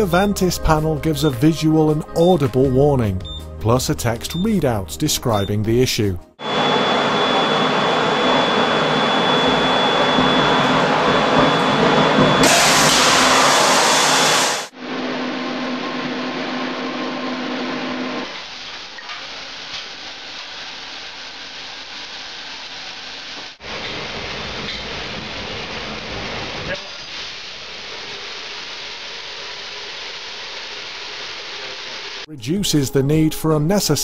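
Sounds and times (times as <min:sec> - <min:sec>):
pan fire rushing: 0:09.3 - 0:14.7
suppression system hissing: 0:12.4 - 0:14.7.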